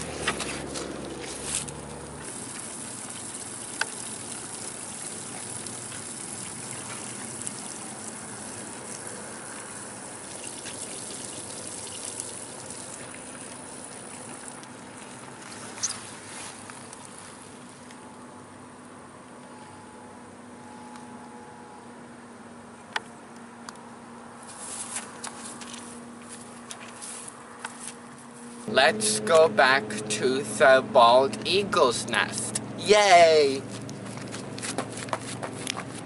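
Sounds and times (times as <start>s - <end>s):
horse urinating onto grass: 0.0s - 18.0s.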